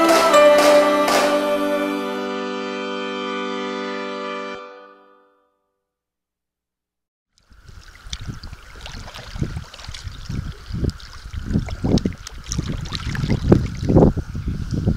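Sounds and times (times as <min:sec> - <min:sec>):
wind on microphone: 0:07.5 - 0:14.9
water swishing against canoe: 0:07.6 - 0:13.6.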